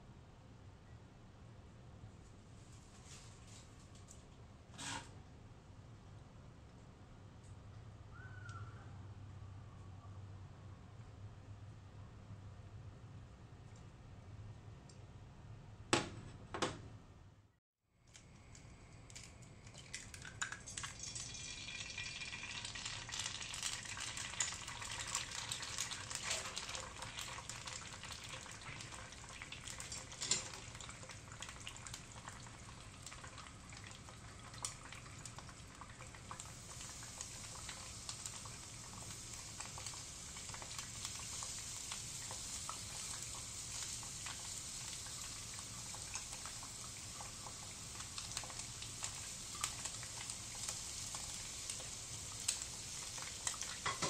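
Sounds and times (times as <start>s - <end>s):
egg sizzling in oil: 18.6s - 54.0s.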